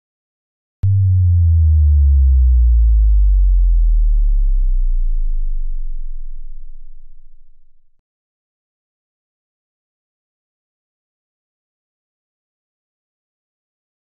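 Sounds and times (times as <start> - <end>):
synthesized deep bass hit: 0.8 - 8.0.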